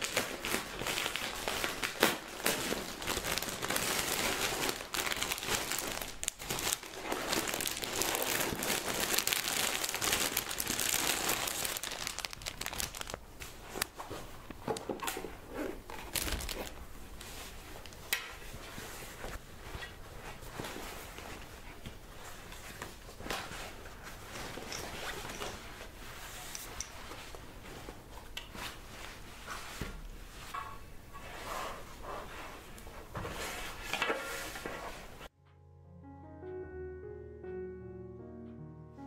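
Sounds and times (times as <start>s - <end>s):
packaging crinkling: 0.0s - 14.9s, 15.8s - 18.0s.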